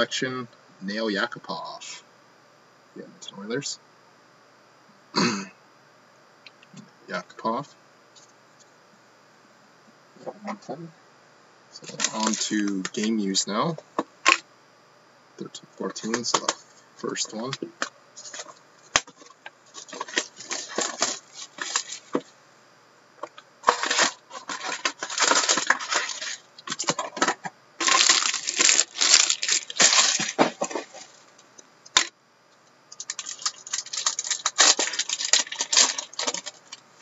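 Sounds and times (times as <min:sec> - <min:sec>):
plastic wrappers crinkling and tearing: 0:11.8 - 0:13.2, 0:18.2 - 0:22.2, 0:23.6 - 0:31.3, 0:32.9 - 0:37.0.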